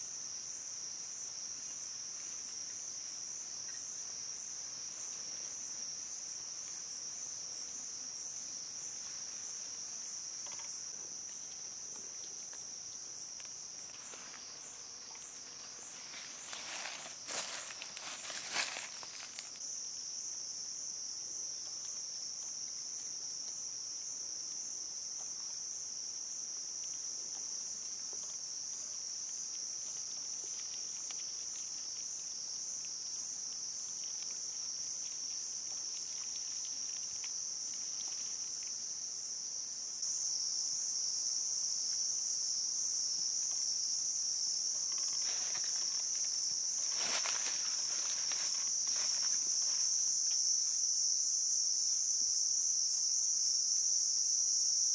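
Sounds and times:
high-pitched insect chorus: 0:00.0 - 0:54.9
footsteps through dry leaves: 0:15.8 - 0:19.6, 0:46.8 - 0:49.9.

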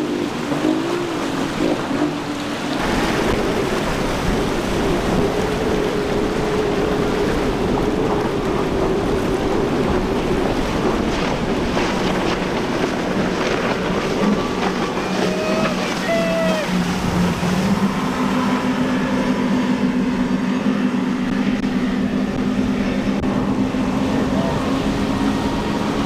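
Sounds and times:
outboard engines humming: 0:00.0 - 0:26.0
water rushing and spray: 0:00.0 - 0:26.0
wind noise on microphone: 0:02.8 - 0:15.9.

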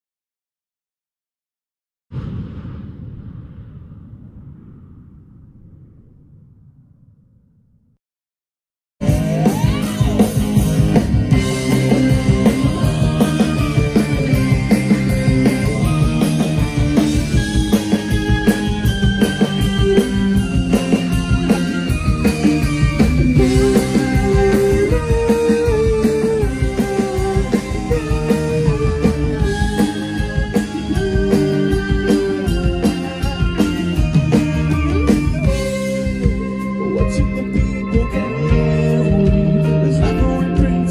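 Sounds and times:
bass: 0:09.0 - 0:40.9
drum kit steady beat: 0:09.0 - 0:40.9.

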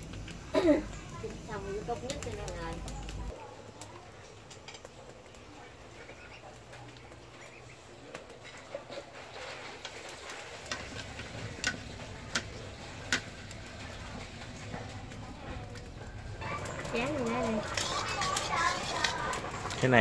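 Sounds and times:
faint cooking sounds from pot: 0:00.0 - 0:20.0
chopsticks clicking in pot: 0:02.0 - 0:03.3, 0:10.7 - 0:13.3.

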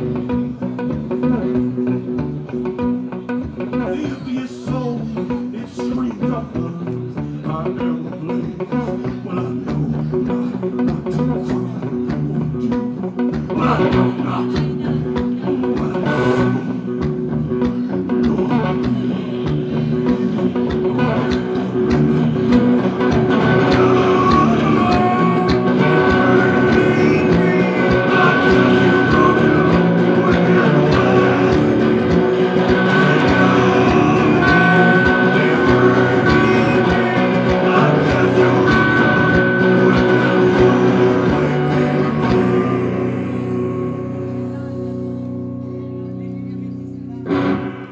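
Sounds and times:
blues-rock electric guitar: 0:00.0 - 0:47.9
steady drum beat: 0:16.9 - 0:42.8.

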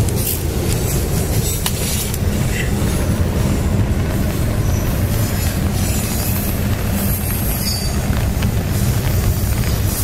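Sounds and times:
freight train rumbling on rails: 0:00.0 - 0:10.0
rain falling: 0:04.1 - 0:10.0.

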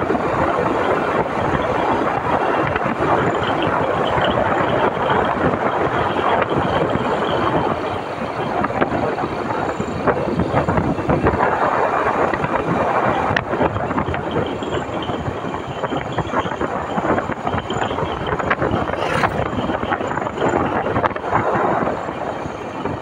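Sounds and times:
wind and road noise: 0:00.0 - 0:23.0
motorcycle engine running: 0:17.8 - 0:20.8.

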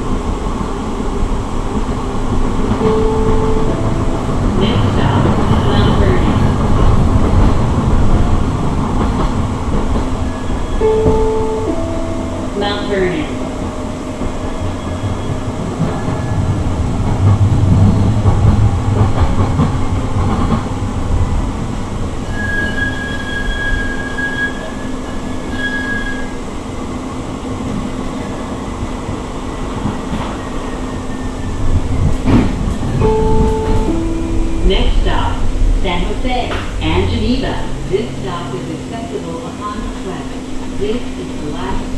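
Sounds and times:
rumble of wheels on rail: 0:00.0 - 0:41.9
thin high squeal: 0:22.3 - 0:26.3.

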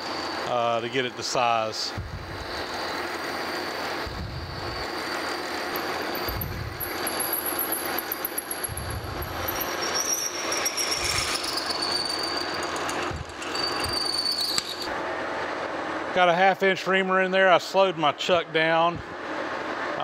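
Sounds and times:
lathe drilling metal: 0:02.4 - 0:14.9
thin high squeal: 0:03.4 - 0:14.9.

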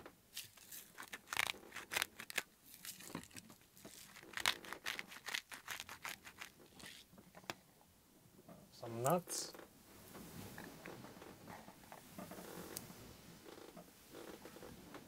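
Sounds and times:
packaging crinkling: 0:00.3 - 0:07.1.

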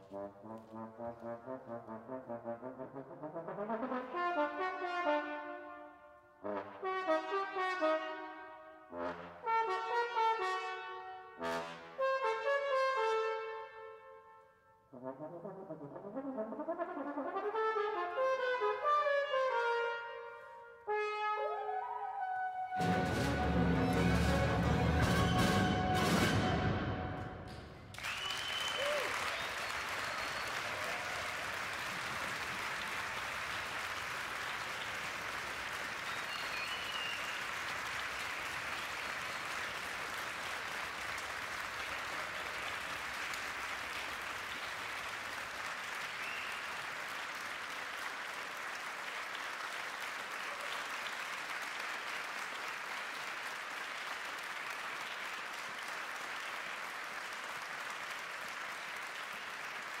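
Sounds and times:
audience applauding: 0:22.8 - 1:00.0.

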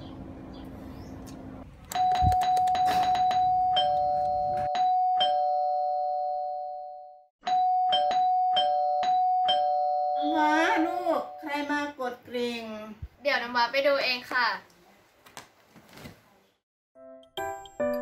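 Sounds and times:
doorbell chime ringing: 0:01.9 - 0:11.5.

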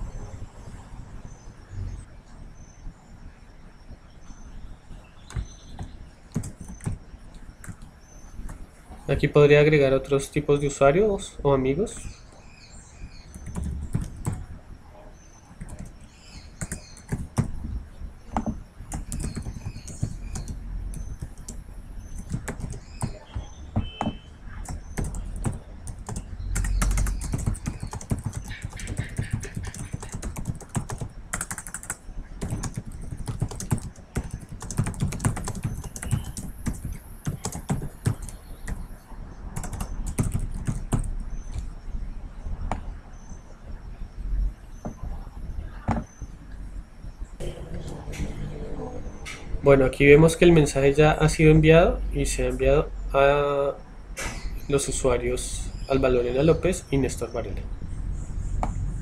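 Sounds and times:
typing on keyboard: 0:05.3 - 0:07.0, 0:07.6 - 0:08.6, 0:13.3 - 0:14.5, 0:15.6 - 0:17.6, 0:18.3 - 0:38.8, 0:39.6 - 0:41.6.

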